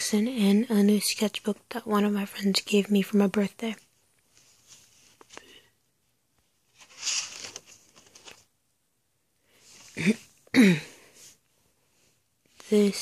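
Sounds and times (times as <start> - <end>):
sketchbook cover rustle: 6.4 - 8.5
person's short vocal sounds: 9.9 - 11.0.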